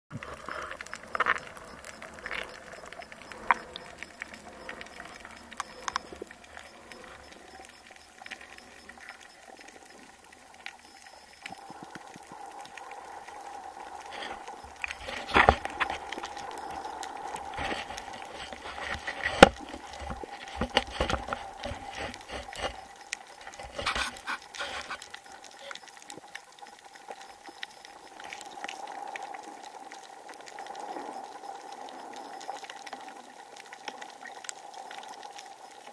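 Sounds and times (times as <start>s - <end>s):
faint steady hum: 0.1s - 35.9s
muffled underwater wash: 0.1s - 35.9s
underwater clicks and knocks: 0.2s - 7.4s, 14.1s - 25.8s.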